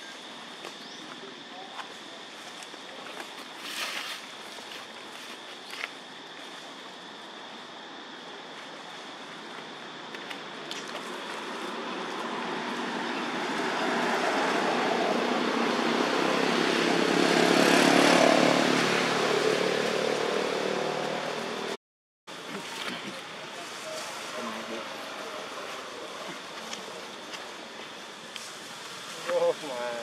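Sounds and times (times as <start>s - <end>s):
passing engine hum: 11.0s - 21.8s.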